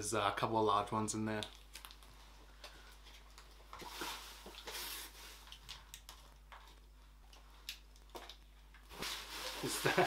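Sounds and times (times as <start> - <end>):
packing paper rustling: 8.9 - 10.0.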